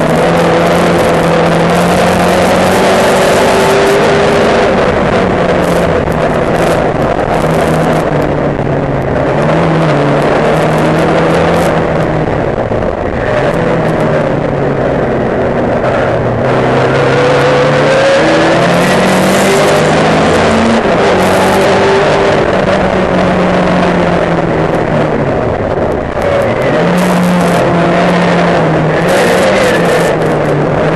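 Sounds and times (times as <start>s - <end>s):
race car engine at high revs: 0.0s - 30.9s.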